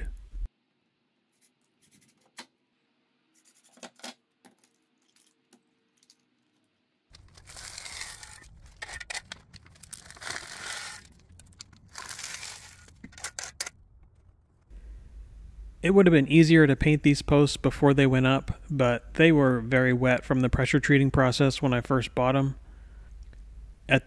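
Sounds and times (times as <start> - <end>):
trowel scraping gravel: 7.2 - 13.7.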